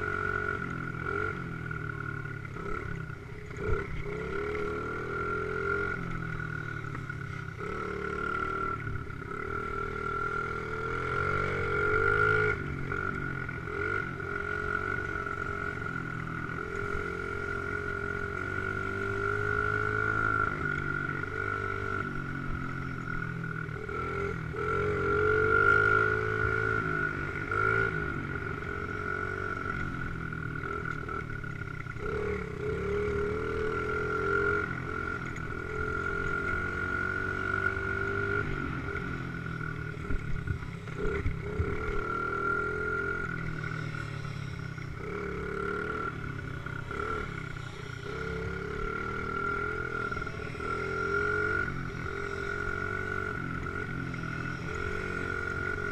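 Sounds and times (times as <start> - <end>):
dirt bike engine revving: 2.1 - 22.8, 23.7 - 55.9.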